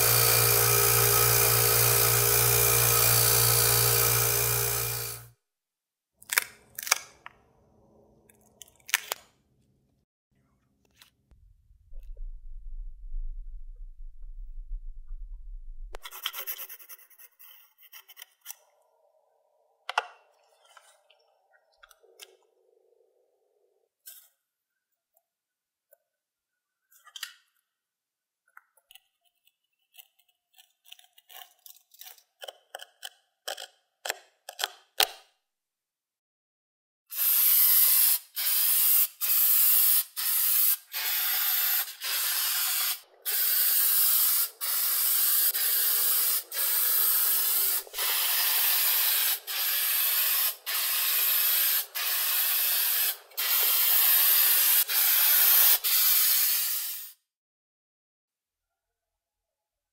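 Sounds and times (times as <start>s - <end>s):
knife cutting masking tape: 29.5s - 35.2s
spray paint hissing: 37.1s - 57.2s.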